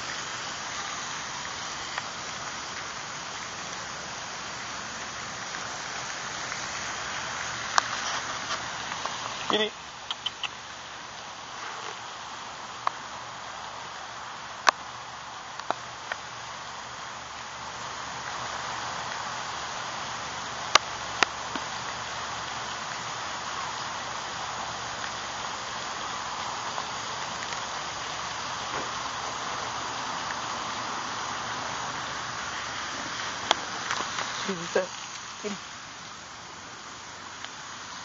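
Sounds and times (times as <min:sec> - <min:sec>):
outdoor background hiss: 0:00.0 - 0:38.0
sharp clicks: 0:09.4 - 0:10.6.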